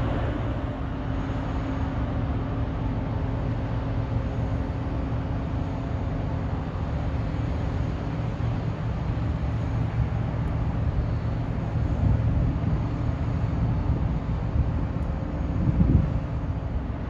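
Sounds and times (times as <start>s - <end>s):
faint machinery hum: 0.0s - 17.0s
low rumble of ships: 0.0s - 17.0s.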